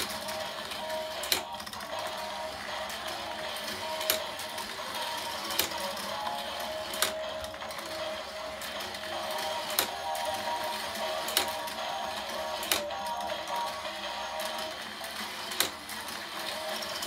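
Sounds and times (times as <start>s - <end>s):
toy motor whirring: 0.0s - 17.0s
sharp plastic clacks: 12.6s - 13.0s.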